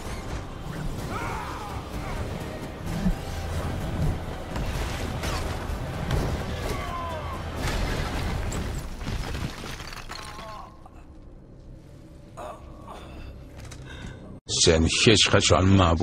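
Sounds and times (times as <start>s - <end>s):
rumbling dramatic score: 0.0s - 9.0s.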